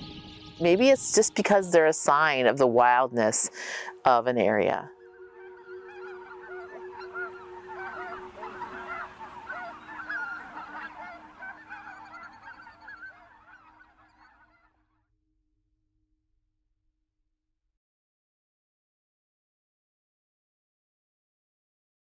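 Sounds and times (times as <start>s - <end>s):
flock of geese honking: 0.0s - 14.8s.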